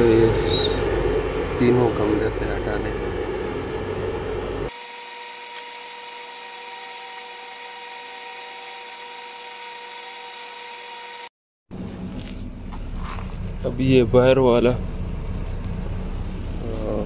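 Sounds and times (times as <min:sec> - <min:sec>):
loud rough rumbling: 0:00.0 - 0:04.7, 0:11.7 - 0:17.0
machine hum with whine: 0:00.0 - 0:17.0.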